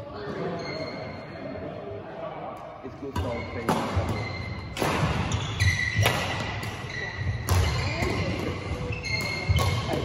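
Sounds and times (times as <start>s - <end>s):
shoes squeaking on court floor: 0.3s - 1.3s, 3.1s - 10.0s
racket striking shuttlecock: 3.2s - 10.0s.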